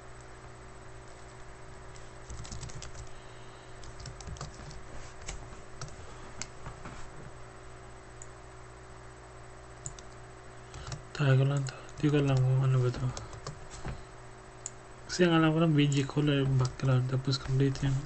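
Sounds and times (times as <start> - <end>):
steady low hum: 0.0 - 18.0
typing on computer keyboard: 2.3 - 3.1, 3.8 - 4.8.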